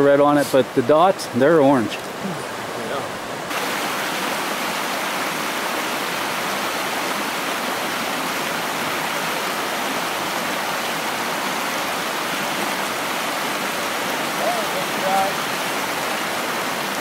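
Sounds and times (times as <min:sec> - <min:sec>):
stream water rushing: 0:00.0 - 0:17.0.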